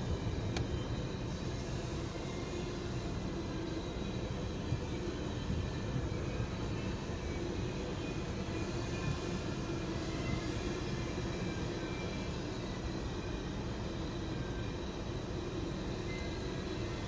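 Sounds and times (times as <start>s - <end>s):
train wheels on rail: 0.0s - 17.0s.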